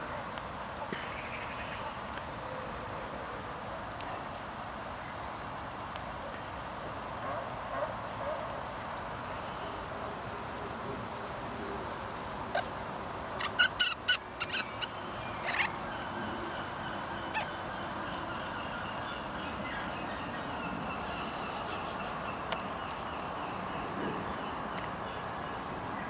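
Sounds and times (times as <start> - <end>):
lemurs squeaking: 13.4 - 15.8, 17.2 - 17.6.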